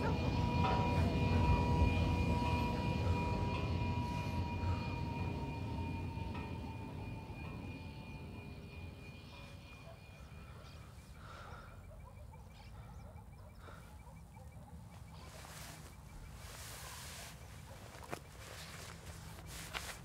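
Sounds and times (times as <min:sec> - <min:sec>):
steady low rumble: 0:00.0 - 0:11.4, 0:14.4 - 0:20.0
rustling of brush and leaves: 0:14.9 - 0:20.0.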